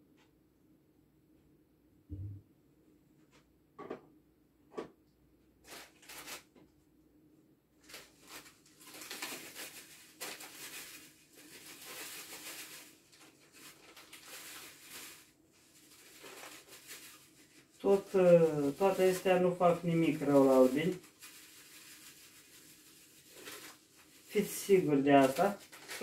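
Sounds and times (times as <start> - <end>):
paper bag rustling: 5.6 - 6.5, 7.8 - 26.0.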